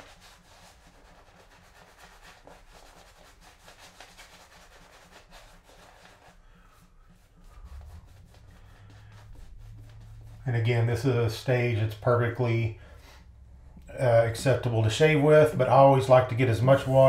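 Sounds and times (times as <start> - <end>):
shaving brush rubbing lather: 0.0 - 12.6, 14.3 - 17.0.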